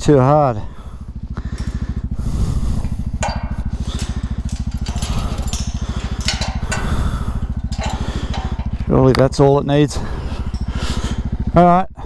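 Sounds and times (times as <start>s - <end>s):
motorcycle engine idling: 0.0s - 12.0s
chain rattling against metal post: 1.3s - 11.6s.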